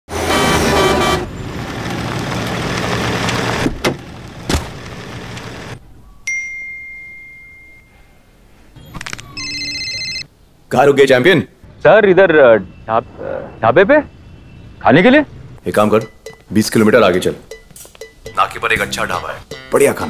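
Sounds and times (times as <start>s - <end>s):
trucks passing on highway: 0.1s - 5.8s.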